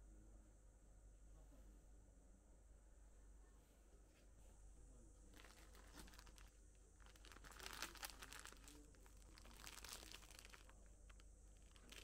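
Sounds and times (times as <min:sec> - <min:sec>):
packaging crinkling and rustling: 0:05.3 - 0:12.0.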